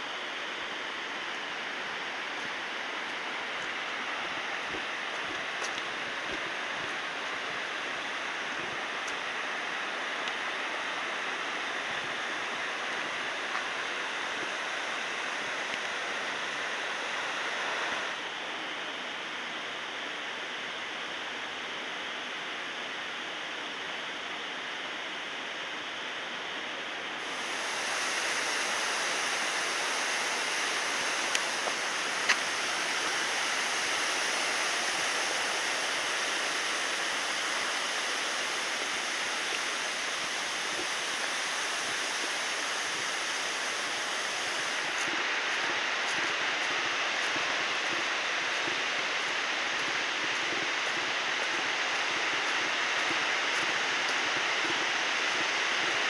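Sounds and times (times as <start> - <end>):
waterfall rushing: 27.2 - 56.0.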